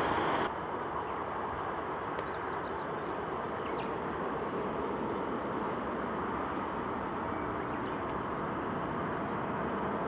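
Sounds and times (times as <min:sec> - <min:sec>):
distant jet engines rumbling: 0:00.0 - 0:10.0
bird chirps: 0:02.2 - 0:04.0.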